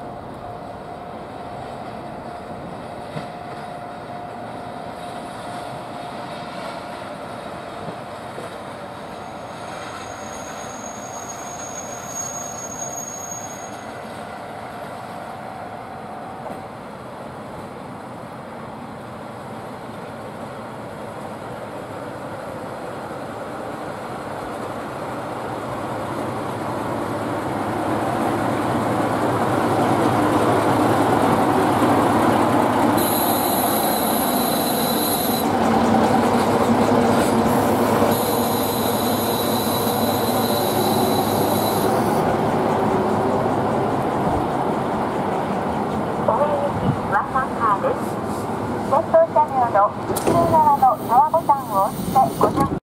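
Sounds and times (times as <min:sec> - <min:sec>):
diesel railcar engine and wheels: 0:00.0 - 0:52.8
high-pitched brake squeal: 0:09.1 - 0:14.0, 0:33.0 - 0:35.5, 0:37.5 - 0:42.2.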